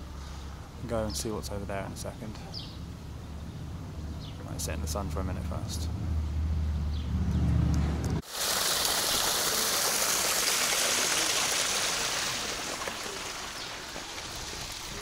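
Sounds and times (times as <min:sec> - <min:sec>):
stream rushing over stones: 0:08.2 - 0:15.0.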